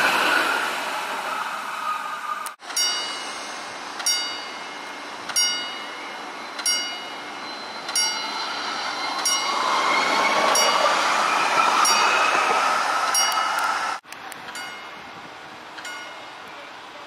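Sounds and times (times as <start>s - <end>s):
electric tram running: 0.0s - 17.0s
level crossing warning bell: 2.6s - 9.7s, 10.5s - 11.0s, 11.8s - 12.2s, 13.1s - 13.7s, 14.5s - 17.0s.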